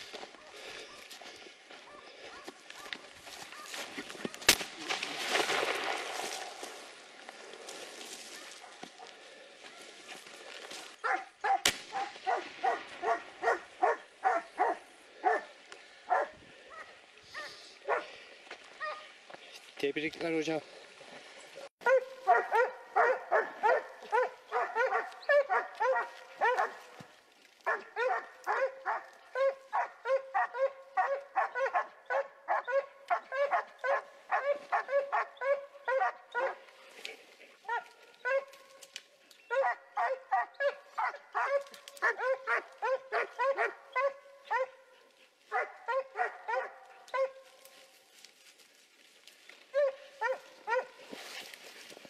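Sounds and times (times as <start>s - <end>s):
dog barking: 0.3s - 1.1s, 1.8s - 3.0s, 11.0s - 15.5s, 16.1s - 18.1s, 18.8s - 19.1s, 21.8s - 27.0s, 27.7s - 36.6s, 37.6s - 38.5s, 39.5s - 44.9s, 45.5s - 47.4s, 49.7s - 51.0s.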